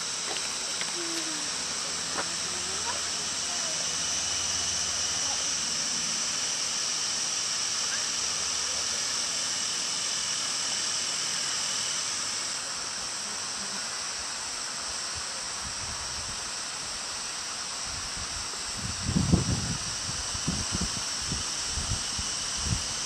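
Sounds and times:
high hiss of bush ambience: 0:00.0 - 0:23.0
wind rumble on microphone: 0:17.9 - 0:23.0.

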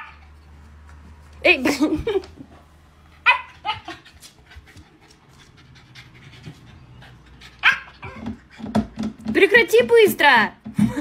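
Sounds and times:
dog yipping: 0:03.2 - 0:04.0, 0:07.5 - 0:08.5.

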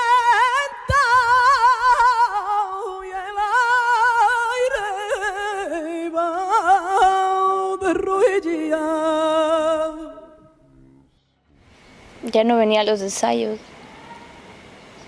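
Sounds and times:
solo voice singing with vibrato: 0:00.0 - 0:10.6.

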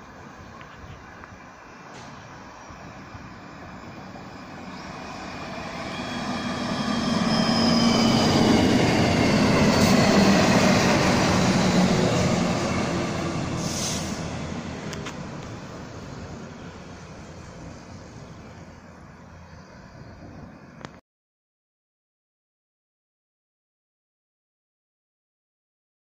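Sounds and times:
high train whine: 0:00.0 - 0:20.8
train rumbling past: 0:00.0 - 0:20.8.

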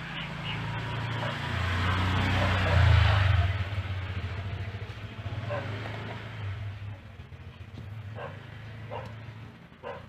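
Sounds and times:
vehicle engine hum: 0:00.0 - 0:10.0.

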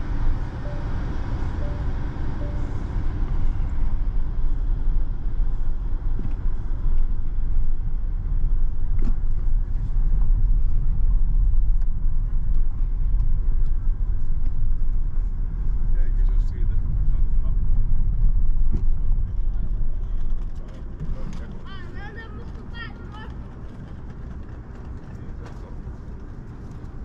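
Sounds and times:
tyres rumbling over cobblestones: 0:00.0 - 0:27.0
short touchscreen beeps: 0:00.7 - 0:01.0, 0:01.6 - 0:02.7.

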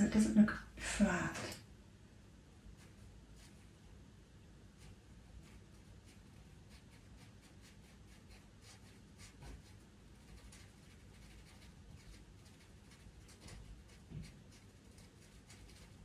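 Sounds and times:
pencil scratching on paper: 0:02.8 - 0:03.7, 0:04.8 - 0:16.0.

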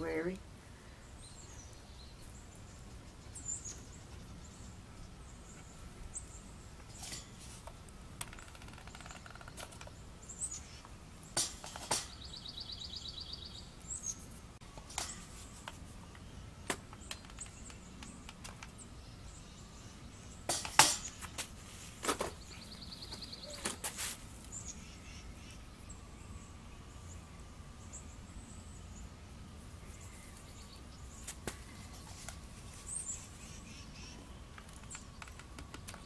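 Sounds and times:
songbirds chirping: 0:00.0 - 0:36.0
sharp clicks and rustles: 0:06.8 - 0:10.0, 0:14.3 - 0:18.8, 0:34.5 - 0:36.0.

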